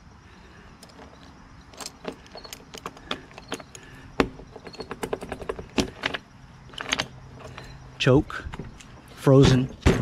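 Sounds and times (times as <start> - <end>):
keys jangling in ignition switch: 0.8 - 3.8.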